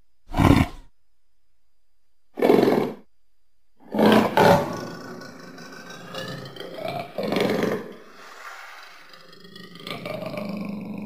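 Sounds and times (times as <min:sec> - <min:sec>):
leopard rasping roars: 0:00.3 - 0:00.9, 0:03.8 - 0:11.0.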